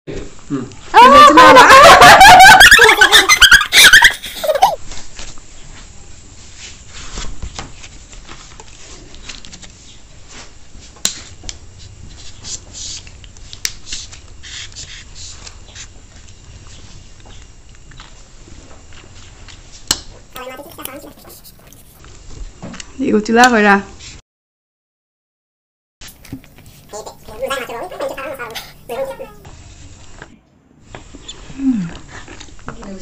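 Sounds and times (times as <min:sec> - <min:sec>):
people laughing and squealing: 0:00.9 - 0:04.8, 0:20.4 - 0:21.9, 0:26.9 - 0:29.4.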